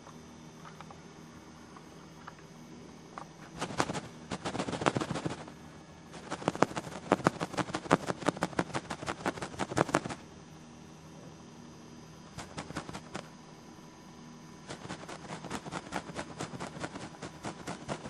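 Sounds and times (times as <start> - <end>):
rapid sharp clicks: 3.6 - 5.5, 6.2 - 10.2, 12.4 - 13.3, 14.7 - 18.0.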